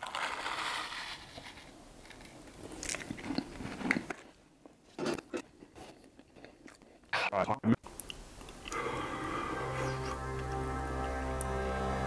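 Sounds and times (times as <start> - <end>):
chewing sunflower seeds: 7.9 - 11.5.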